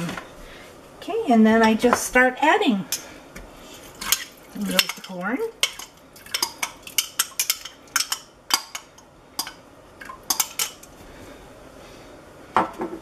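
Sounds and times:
metal tongs clinking on glass: 0:10.3 - 0:10.9.

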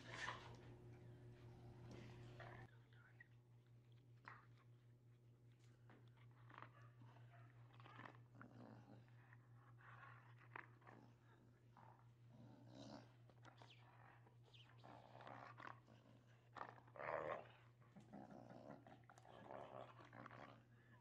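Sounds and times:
dog growling in play: 0:06.2 - 0:21.0.

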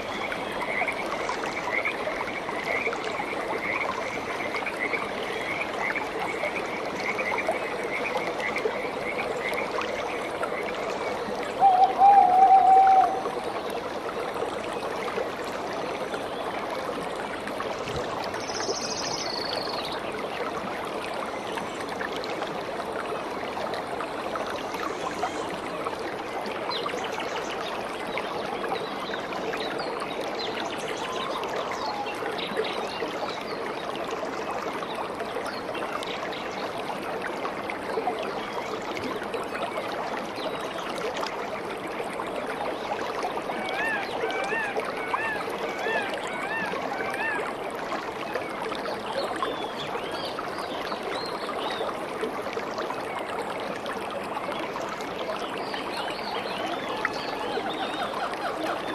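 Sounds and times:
stream rushing over rocks: 0:00.0 - 0:58.9
high-pitched calls: 0:11.6 - 0:13.2.

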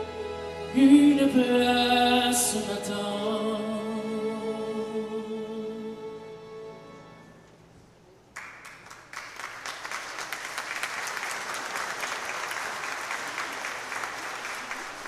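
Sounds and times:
audience applause: 0:08.4 - 0:15.0.

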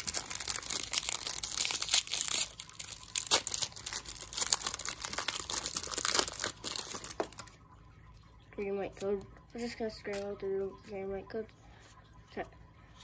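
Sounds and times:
foil pack crinkling and tearing: 0:00.0 - 0:07.5.

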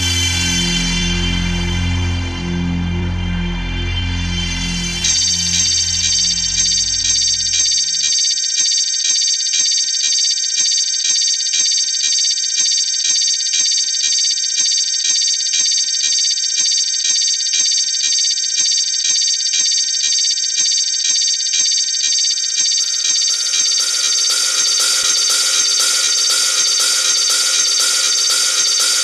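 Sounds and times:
high pulsing synth tone: 0:00.0 - 0:08.4, 0:22.6 - 0:29.0.

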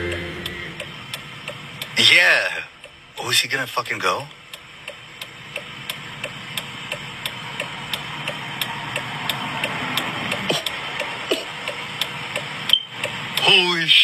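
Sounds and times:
indicator relay ticking: 0:00.0 - 0:13.7
tyre and road noise: 0:04.3 - 0:14.0.

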